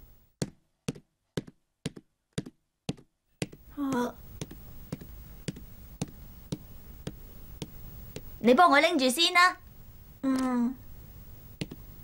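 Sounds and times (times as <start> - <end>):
footsteps on wooden floor: 0.4 - 8.4, 11.6 - 11.8
small child vocal sound: 3.7 - 4.2, 10.2 - 10.8.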